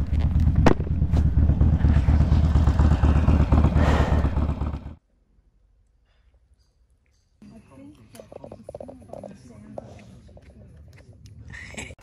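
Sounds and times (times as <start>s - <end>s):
motorcycle engine idling: 0.2s - 5.0s.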